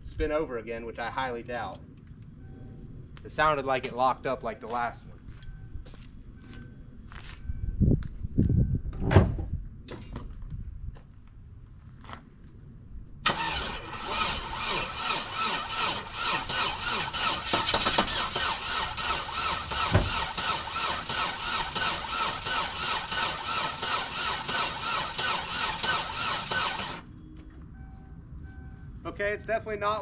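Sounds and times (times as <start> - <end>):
car engine cranking on starter: 13.2 - 27.1.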